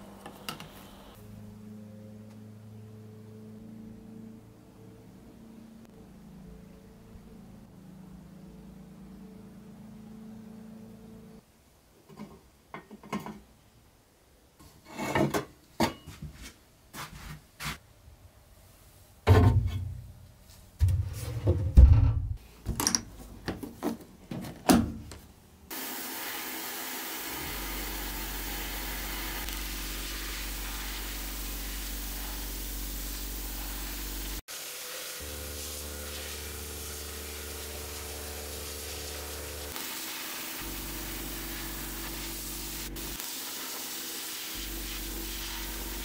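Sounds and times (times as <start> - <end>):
low hum: 1.1 - 11.4
sandblaster hissing: 25.7 - 46.0.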